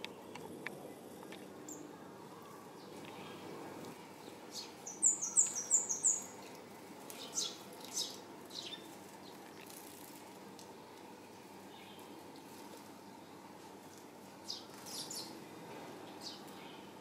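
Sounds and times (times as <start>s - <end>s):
sparrows chirping: 0.0s - 2.1s, 2.7s - 9.8s, 11.6s - 13.4s, 14.4s - 15.4s, 16.1s - 17.0s.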